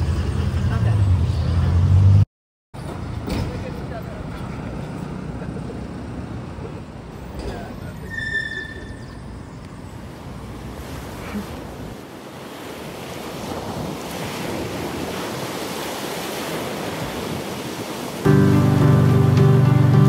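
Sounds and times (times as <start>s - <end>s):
ocean surf washing up beach: 10.2s - 20.0s
wind buffeting microphone: 10.4s - 18.3s.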